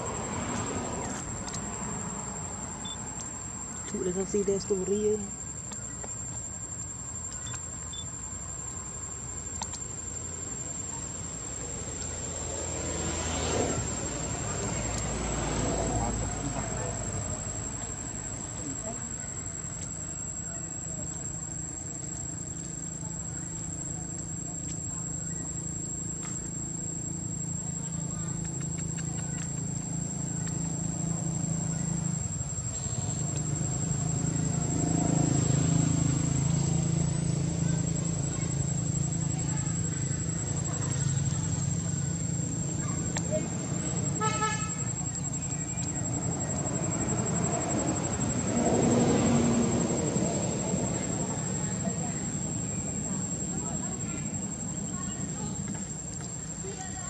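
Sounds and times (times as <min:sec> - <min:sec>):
high-pitched insect trill: 0:00.0 - 0:57.0
faint clicks: 0:07.2 - 0:07.7, 0:09.4 - 0:09.9, 0:27.9 - 0:31.0.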